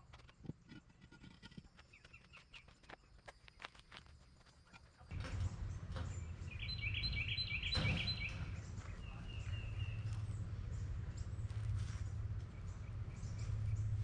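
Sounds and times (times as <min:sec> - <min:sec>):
bird chirping: 0:00.2 - 0:03.7, 0:05.1 - 0:14.0
steady low rumble: 0:08.3 - 0:14.0.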